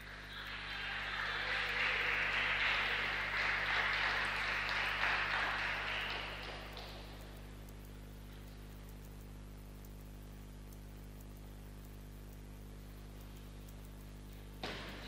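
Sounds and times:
crowd applauding: 0.0 - 7.5.

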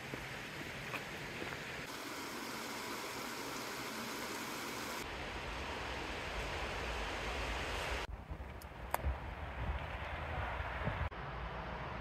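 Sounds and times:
creek water over rocks: 0.0 - 5.0.

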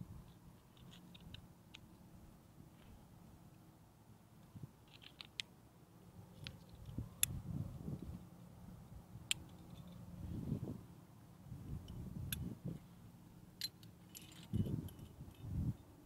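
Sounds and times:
carabiners clinking together: 13.6 - 15.6.

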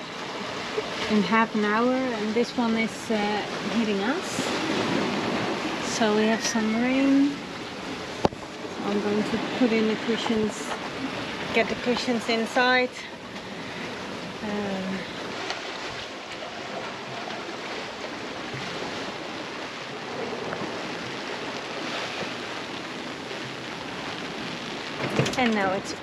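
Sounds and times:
wind: 0.0 - 26.0
heavy rain: 13.3 - 26.0.

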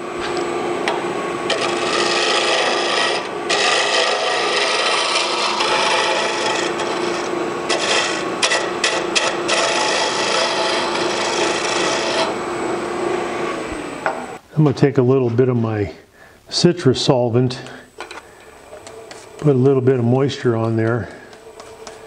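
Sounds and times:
lathe motor hum: 0.0 - 14.4
sandpaper rasping on spinning wood: 1.5 - 12.3.

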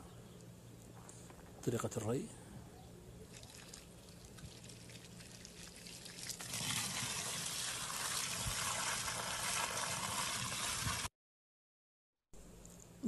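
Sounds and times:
water pouring into soil: 3.3 - 11.1.

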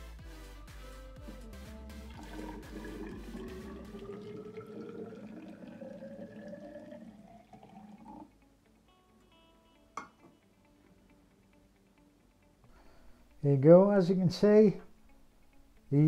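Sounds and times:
water pouring into a cylinder: 2.1 - 8.3.

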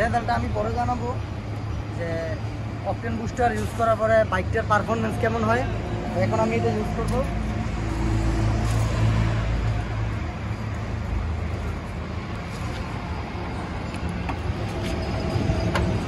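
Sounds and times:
road traffic noise: 0.0 - 16.0.

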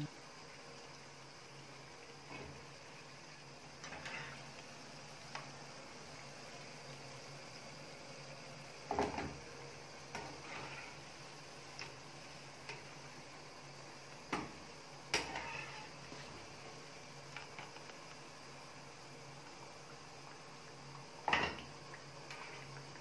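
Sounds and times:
oil sizzling: 0.0 - 23.0
metal spatula scraping frying pan: 3.8 - 4.4, 10.2 - 11.0, 15.1 - 15.9.

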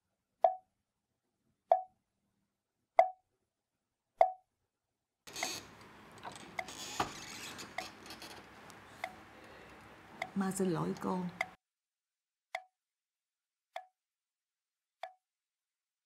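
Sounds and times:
room background noise: 5.3 - 11.5.

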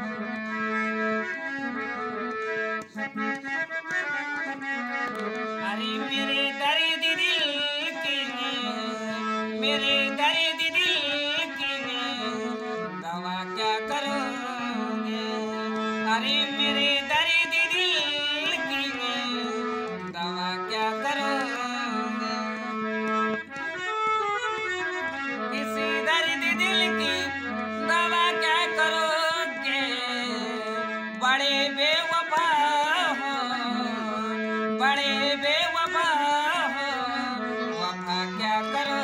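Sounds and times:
harmonium melody: 0.0 - 39.0
man singing: 5.6 - 22.8, 25.4 - 39.0.

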